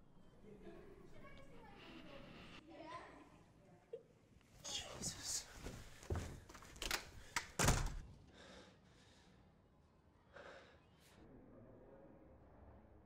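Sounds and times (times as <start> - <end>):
person breathing: 8.2 - 9.6, 10.2 - 11.2.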